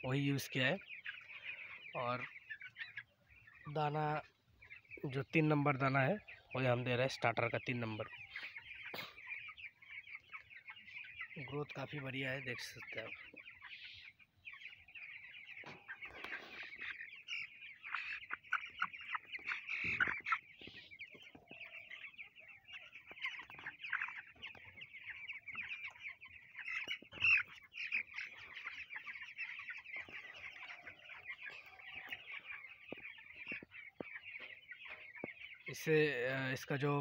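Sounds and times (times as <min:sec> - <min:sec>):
chicks peeping: 0:00.0 - 0:37.0.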